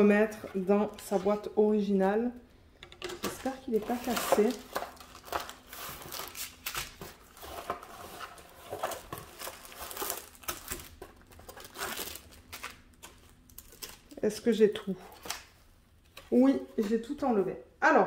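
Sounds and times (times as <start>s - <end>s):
packaging rustling and crinkling: 3.2s - 14.2s.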